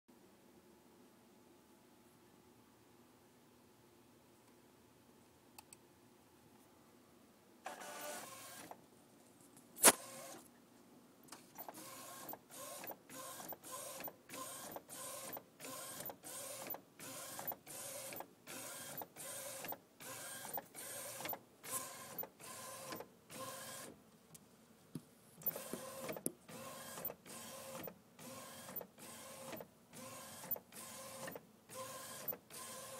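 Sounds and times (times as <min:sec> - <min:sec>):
printer carriage moving back and forth: 0:07.7 - 0:08.8, 0:11.3 - 0:23.9, 0:25.4 - 0:32.9.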